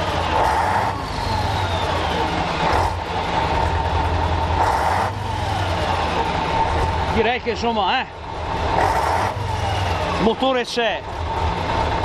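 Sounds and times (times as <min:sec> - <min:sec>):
diesel engine running: 0:00.0 - 0:12.0
thin engine whine: 0:00.0 - 0:12.0.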